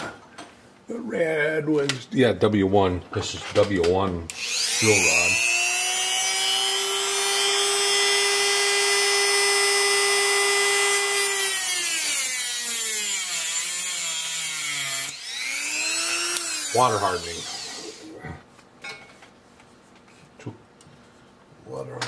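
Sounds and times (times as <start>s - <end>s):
power tool motor whining: 4.3s - 18.2s.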